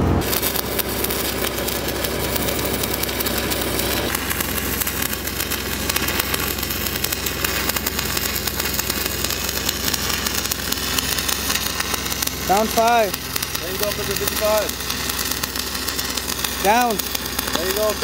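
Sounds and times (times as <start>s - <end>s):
welding machine engine drone: 0.0s - 18.0s
welding arc crackling: 0.1s - 18.0s.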